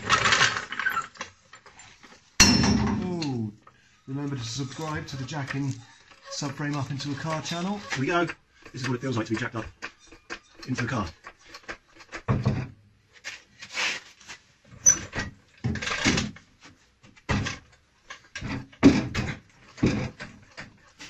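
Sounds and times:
jack being pumped: 4.3 - 12.3.

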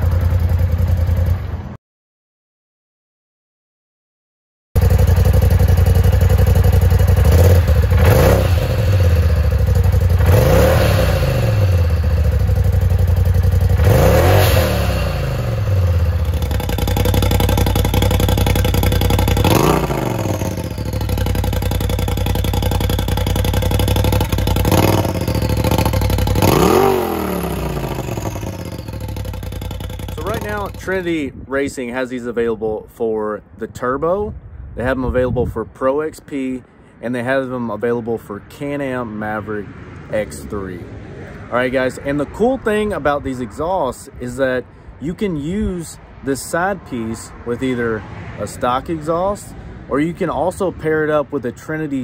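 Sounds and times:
engine idling and revving: 0.0 - 1.8, 4.8 - 31.4.

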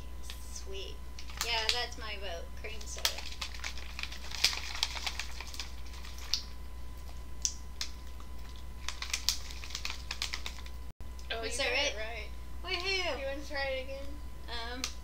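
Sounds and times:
plastic water bottle crinkling: 2.9 - 6.5, 7.8 - 10.8.

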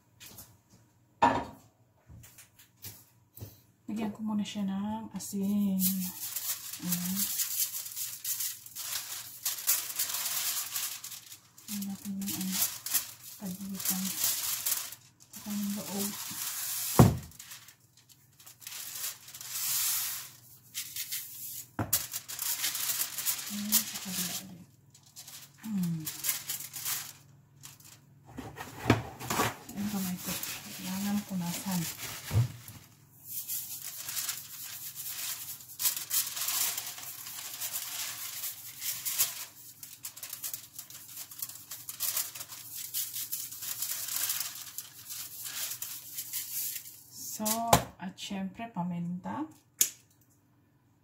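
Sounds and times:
aluminium foil crinkling: 5.2 - 47.8.

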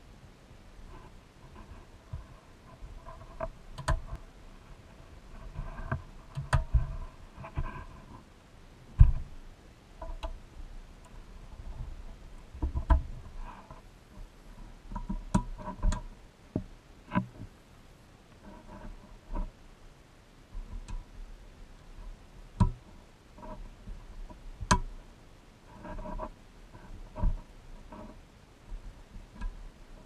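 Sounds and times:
light clicks and taps on metal: 1.0 - 4.3, 5.3 - 8.2, 10.0 - 10.4, 11.0 - 17.5, 20.5 - 25.0, 25.8 - 30.0.

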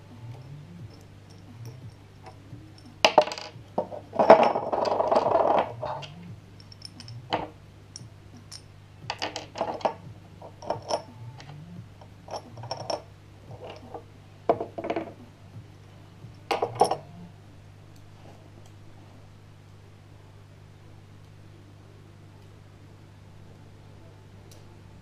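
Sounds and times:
faint steady hum: 0.0 - 25.0
light metal clinks and taps: 0.3 - 11.1, 12.0 - 15.1, 16.2 - 17.0.

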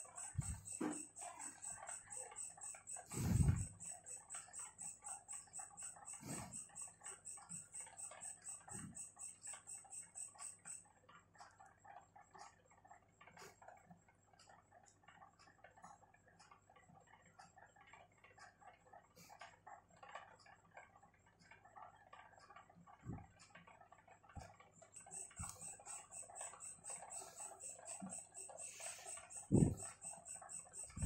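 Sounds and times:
pen writing on paper: 3.0 - 7.1.

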